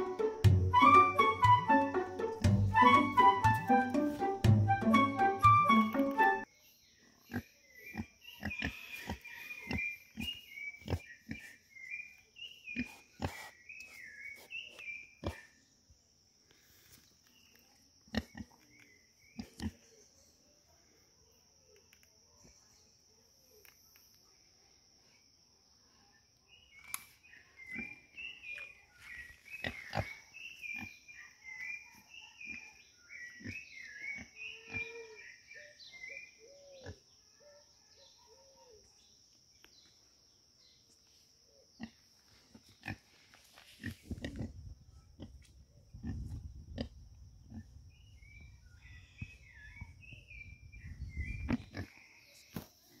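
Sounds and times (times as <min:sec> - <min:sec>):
pigs grunting and squeaking: 0:07.3 - 0:11.4, 0:33.4 - 0:35.2.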